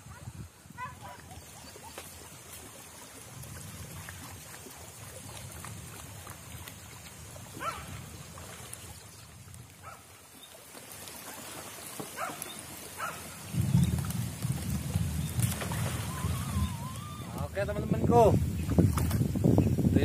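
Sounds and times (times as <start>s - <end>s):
light rain on a river: 0.0s - 19.9s.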